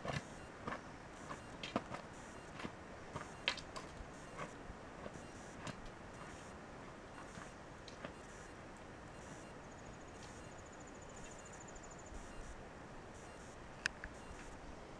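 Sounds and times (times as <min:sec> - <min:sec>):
insect trill: 0:09.2 - 0:12.5.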